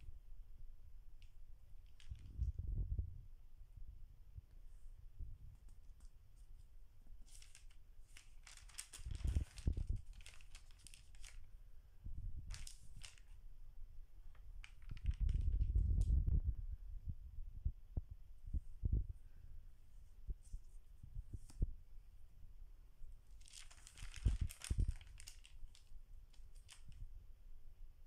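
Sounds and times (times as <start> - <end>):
stiff pages rustling: 1.8 - 2.5, 5.6 - 11.5, 12.5 - 13.4, 14.3 - 15.8, 23.4 - 27.0.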